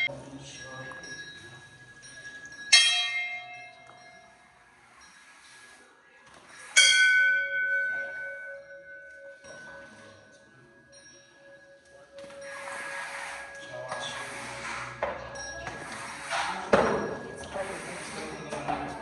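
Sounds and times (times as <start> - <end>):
temple bells ringing: 0.0 - 4.6, 6.8 - 12.8.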